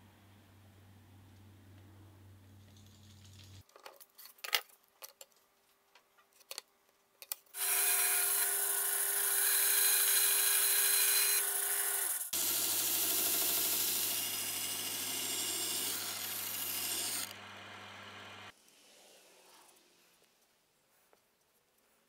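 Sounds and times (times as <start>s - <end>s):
bandsaw cutting wood: 7.6s - 18.5s
disc sander grinding wood: 7.6s - 18.5s.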